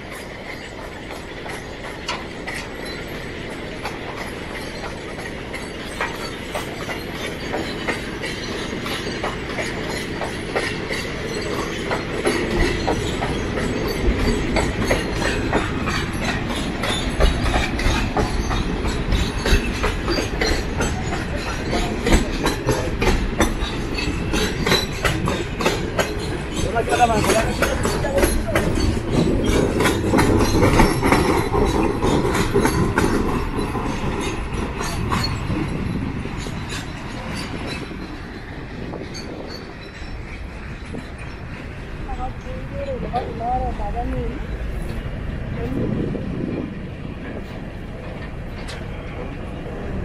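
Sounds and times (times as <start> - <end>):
footsteps on metal footbridge: 0.0 - 41.8.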